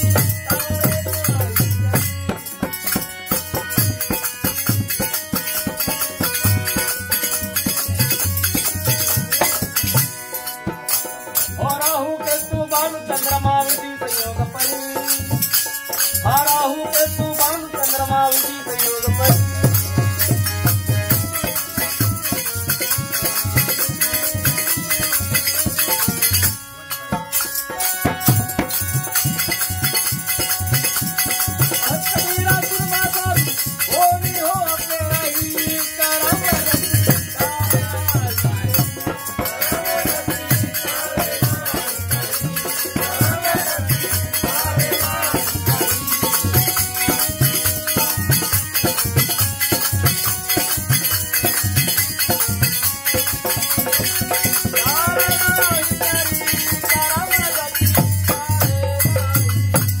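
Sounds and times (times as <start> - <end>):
hand drum: 0.0 - 10.8, 27.4 - 60.0
voices singing devotional song: 0.0 - 51.0, 53.1 - 59.9
harmonium: 0.0 - 60.0.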